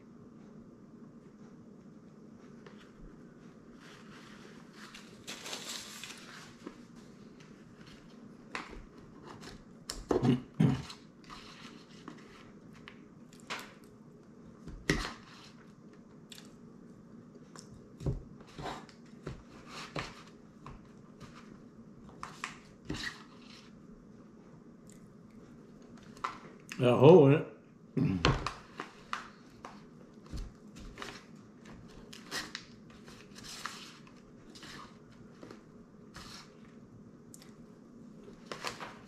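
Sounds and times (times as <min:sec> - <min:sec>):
person chewing: 0:16.2 - 0:16.6.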